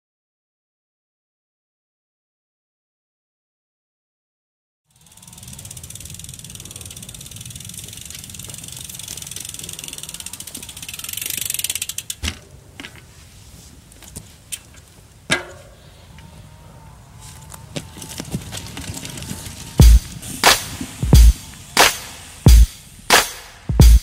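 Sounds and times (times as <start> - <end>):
bicycle freehub ratchet buzzing: 4.9 - 12.2, 19.5 - 23.2.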